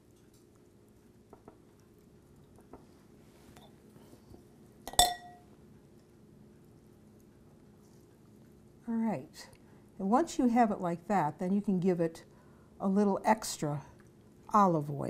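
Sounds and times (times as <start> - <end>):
faint taps and clicks: 1.3 - 1.9, 2.5 - 2.9
utensil clinking glass bowl: 4.8 - 5.5.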